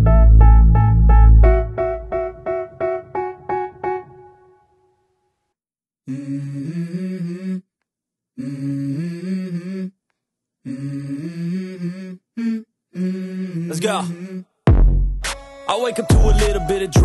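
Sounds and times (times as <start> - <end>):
held music chords: 0.0 - 4.6.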